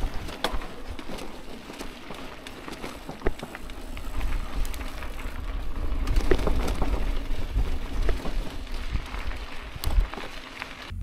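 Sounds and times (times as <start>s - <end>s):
bicycle clicks and rattles: 0.0s - 10.9s
bicycle tyres on dirt track: 0.0s - 11.0s
wind rumble on microphone: 4.0s - 11.0s.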